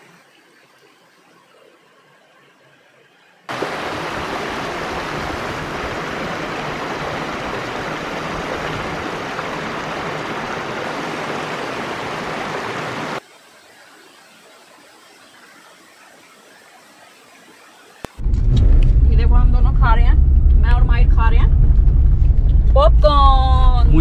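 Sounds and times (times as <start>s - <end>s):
water rushing down waterfall: 3.5s - 18.2s.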